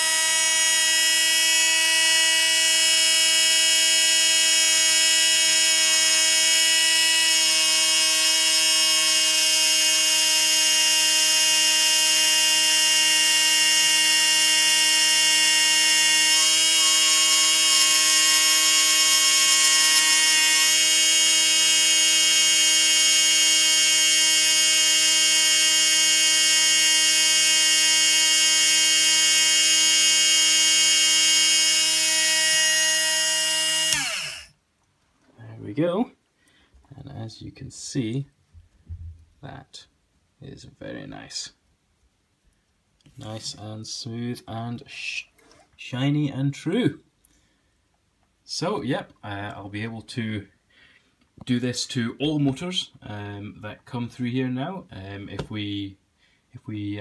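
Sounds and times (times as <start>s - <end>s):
small electric motor whining: 0.0s - 34.5s.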